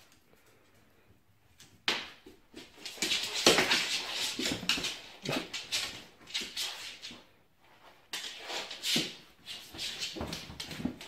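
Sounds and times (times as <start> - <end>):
paw scuffles and knocks on floor: 2.0 - 7.2, 8.1 - 11.0.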